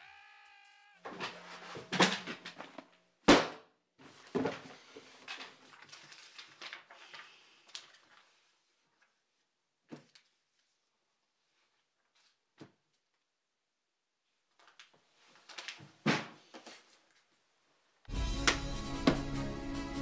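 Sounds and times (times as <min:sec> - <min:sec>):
rustling: 0:04.0 - 0:09.2.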